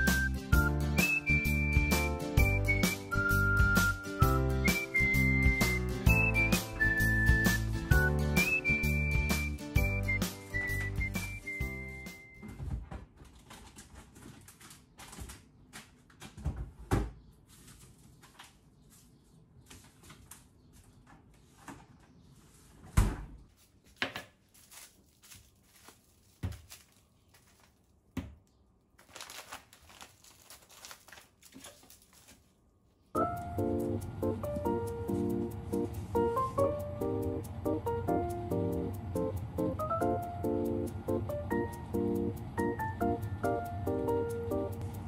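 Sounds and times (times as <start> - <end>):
plastic bags rustling: 13.1 - 16.2, 23.4 - 28.2, 28.8 - 33.1.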